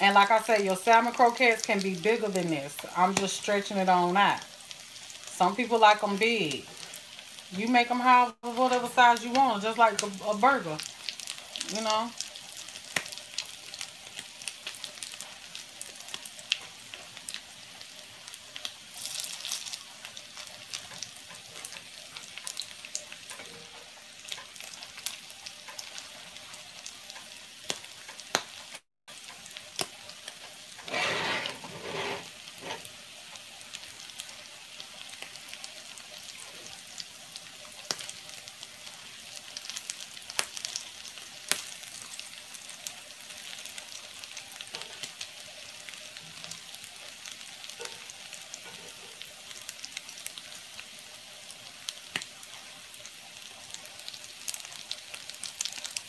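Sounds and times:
patties sizzling in hot oil: 0:00.0 - 0:56.0
metal spatula in pan: 0:30.8 - 0:32.9.

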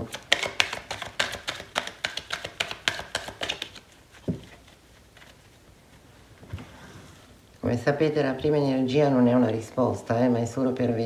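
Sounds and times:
cards being shuffled: 0:00.0 - 0:05.6.

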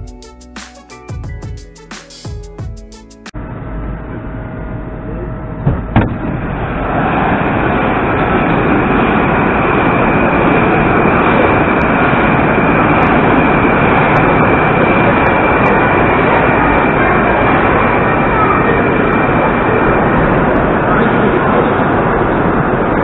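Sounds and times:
train wheels rumbling on rail: 0:05.6 - 0:23.0.

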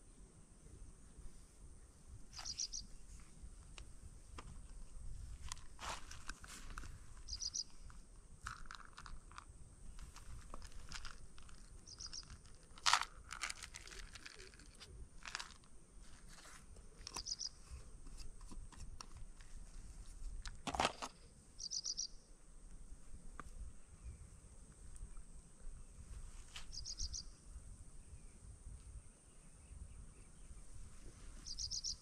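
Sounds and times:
crunching handling noises: 0:02.3 - 0:21.3.

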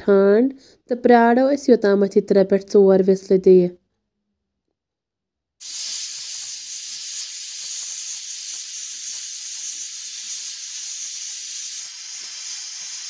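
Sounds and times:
pressure cooker steam hissing: 0:05.6 - 0:13.0.

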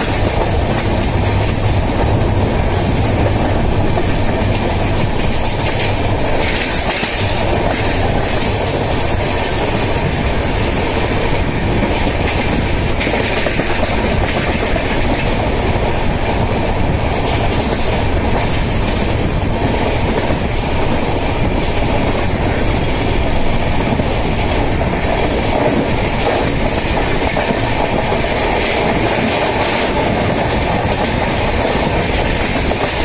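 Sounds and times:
train wheels rumbling on rails: 0:00.0 - 0:33.0.

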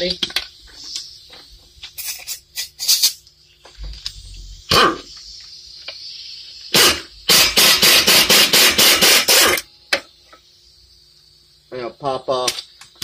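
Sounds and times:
impact wrench hammering: 0:06.8 - 0:09.6.

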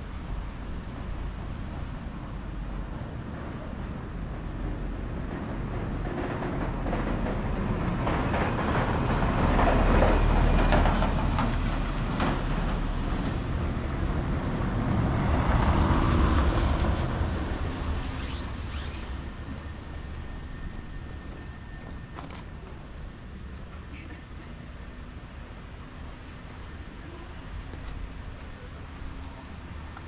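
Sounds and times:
vehicles passing with tyre noise: 0:00.0 - 0:30.0.

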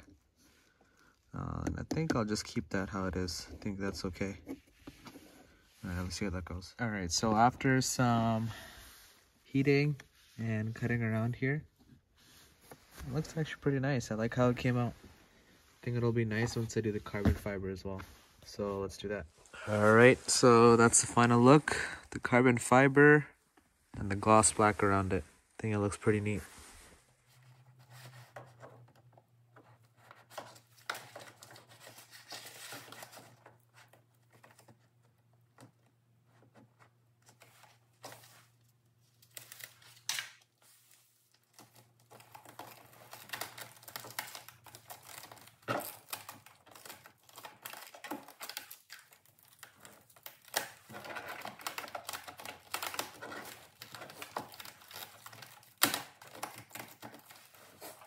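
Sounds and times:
plastic film crinkling: 0:37.2 - 0:58.0.

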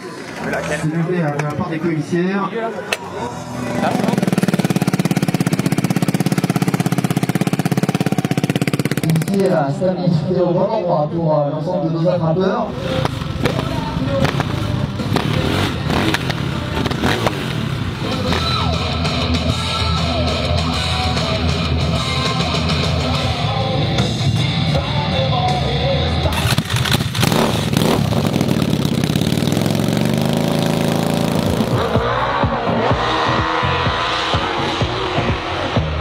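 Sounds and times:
background music: 0:00.0 - 0:06.4, 0:12.6 - 0:28.1, 0:30.6 - 0:36.0
dirt bike engines running: 0:02.6 - 0:09.9, 0:12.7 - 0:36.0.

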